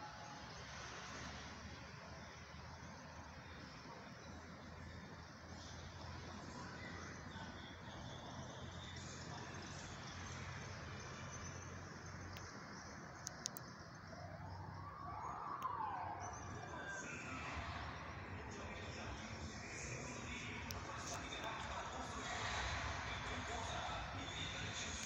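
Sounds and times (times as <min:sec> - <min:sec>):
distant hum and hiss: 0:00.0 - 0:25.0
sharp clicks: 0:12.3 - 0:14.0.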